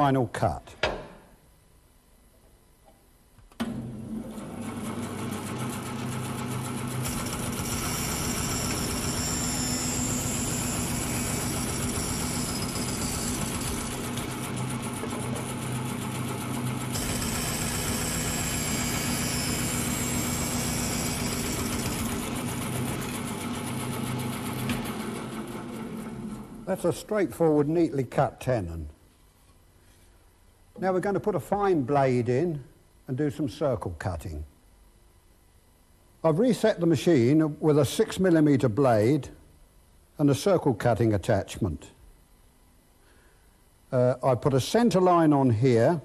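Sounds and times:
bandsaw motor humming: 0:03.7 - 0:26.7
saw blade cutting wood: 0:07.0 - 0:14.2, 0:16.9 - 0:22.9.

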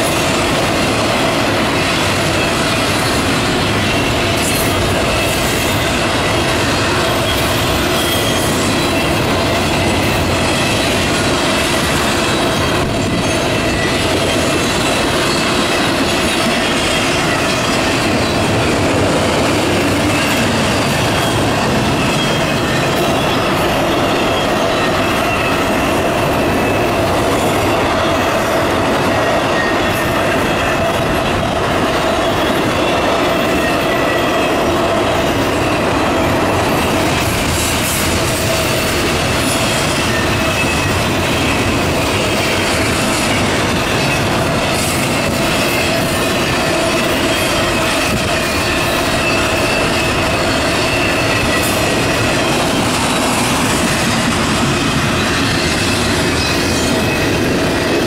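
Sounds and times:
train wheels rolling on rails: 0:00.0 - 0:58.0.

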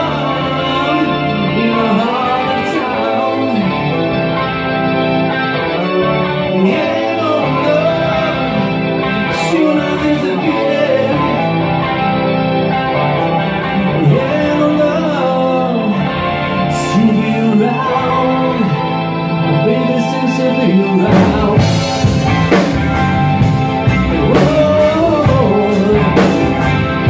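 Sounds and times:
man singing: 0:00.0 - 0:04.5, 0:06.2 - 0:12.2, 0:13.3 - 0:22.6, 0:23.8 - 0:26.9
drums: 0:00.0 - 0:27.0
electric bass: 0:00.0 - 0:27.0
electric guitar: 0:00.0 - 0:27.0.

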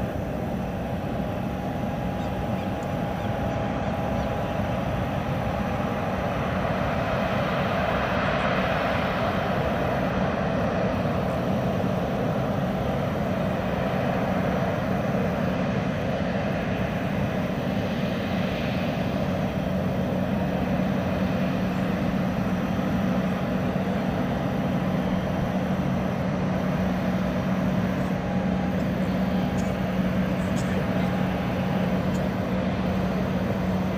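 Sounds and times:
jet engines running: 0:00.0 - 0:33.9.

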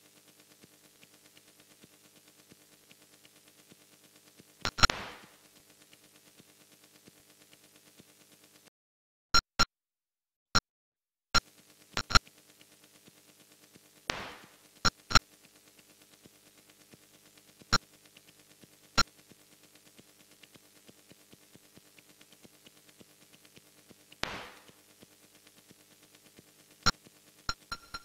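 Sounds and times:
sharp digital clicks: 0:04.6 - 0:05.3, 0:12.0 - 0:12.2, 0:14.1 - 0:15.2, 0:27.5 - 0:28.0
hissing noise bursts: 0:04.6 - 0:05.5, 0:14.1 - 0:15.2, 0:24.2 - 0:24.9
soft fast ticking pulse: 0:04.6 - 0:06.1, 0:11.4 - 0:12.7, 0:26.8 - 0:28.0.

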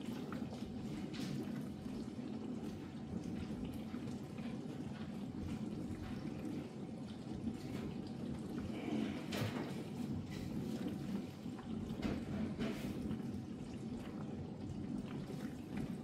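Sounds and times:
dishwasher low hum: 0:00.0 - 0:16.0
water splashing inside dishwasher: 0:00.0 - 0:16.0.

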